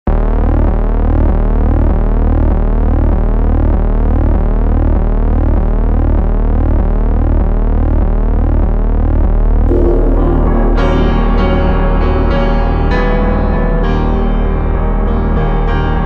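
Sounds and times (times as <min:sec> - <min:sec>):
electronic synthesizer music: 0:09.7 - 0:16.0.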